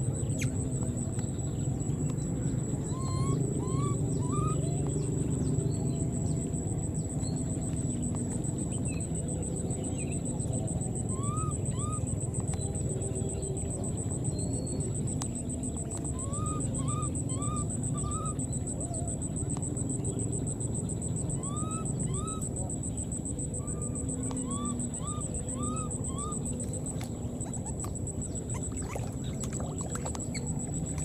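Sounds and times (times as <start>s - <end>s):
steady low rumble: 0.0s - 31.0s
thin high whine: 0.0s - 31.0s
baby monkeys squeaking: 2.9s - 4.9s, 16.1s - 18.4s, 23.5s - 26.7s.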